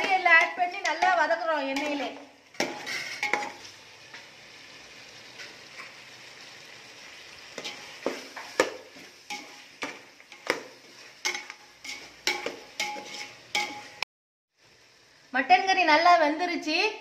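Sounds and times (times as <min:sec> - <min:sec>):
meat sizzling in oil: 0:00.0 - 0:16.8
metal ladle scraping a pot: 0:02.6 - 0:03.7, 0:11.2 - 0:14.0.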